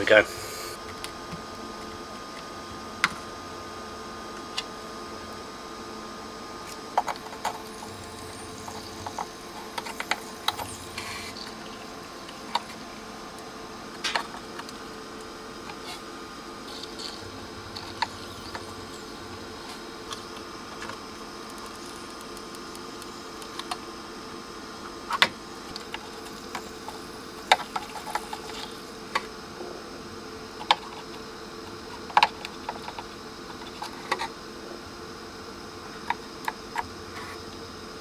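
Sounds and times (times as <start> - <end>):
steady bench hum: 0.0 - 38.0.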